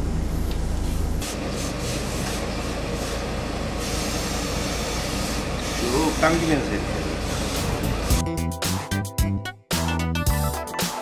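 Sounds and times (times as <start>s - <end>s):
steam iron hissing: 1.2s - 8.2s.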